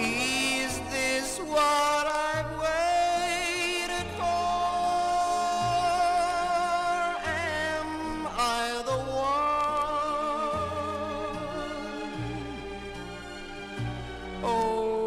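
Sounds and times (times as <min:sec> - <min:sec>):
orchestral pop ballad: 0:00.0 - 0:15.0.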